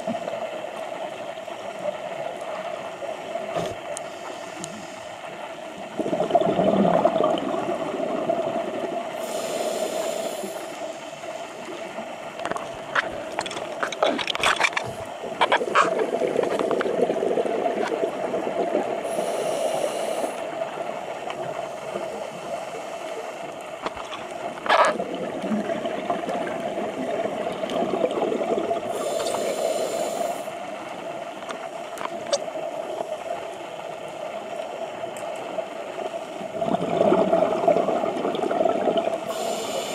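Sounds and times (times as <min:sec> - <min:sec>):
exhaled bubbles gurgling: 0:05.8 - 0:10.8, 0:12.9 - 0:20.4, 0:23.9 - 0:30.6, 0:36.0 - 0:39.9
regulator inhalation hiss: 0:09.2 - 0:11.3, 0:19.0 - 0:20.5, 0:28.9 - 0:30.6, 0:39.2 - 0:39.9.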